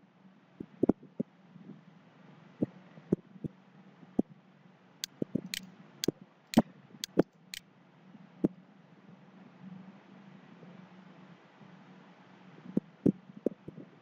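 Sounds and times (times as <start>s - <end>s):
computer mouse clicking: 7.0s - 7.2s.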